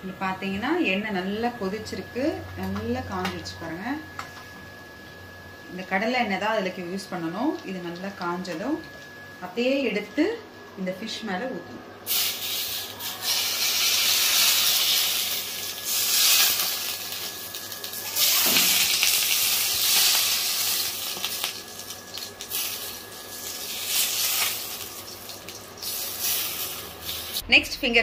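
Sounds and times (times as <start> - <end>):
hot oil sizzling: 12.1 - 27.5.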